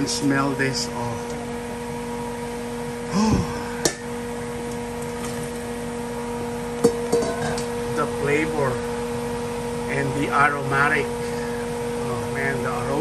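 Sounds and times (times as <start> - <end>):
electrical hum: 0.0 - 13.0
steel bowl knocking on pot: 6.8 - 7.7.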